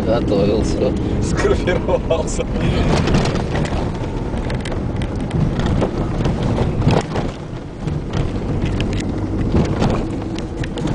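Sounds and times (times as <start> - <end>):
tyre and suspension rumble: 0.0 - 10.9
car body knocks and rattles: 2.7 - 10.9.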